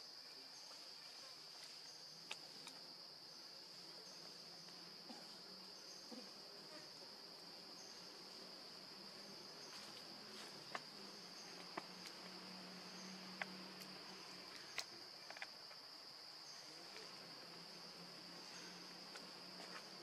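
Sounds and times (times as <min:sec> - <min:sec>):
insect chorus drone: 0:00.0 - 0:20.0
faint sharp clicks: 0:13.3 - 0:15.6.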